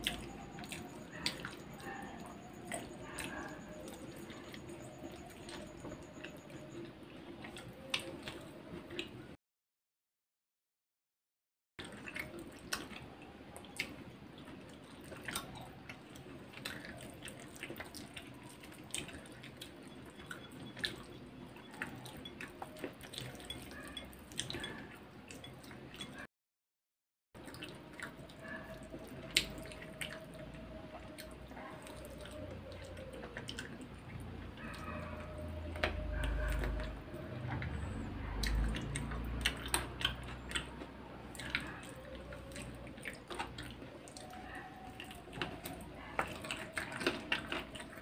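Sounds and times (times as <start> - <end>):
wet chewing: 0.0 - 9.3, 11.8 - 26.3, 27.4 - 48.0.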